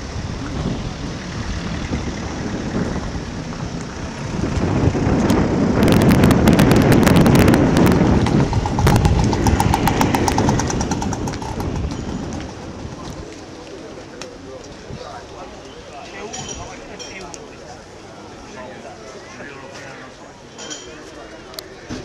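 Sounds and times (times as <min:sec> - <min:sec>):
engine passing by: 0:00.0 - 0:13.6
rapid ticking: 0:06.6 - 0:12.7.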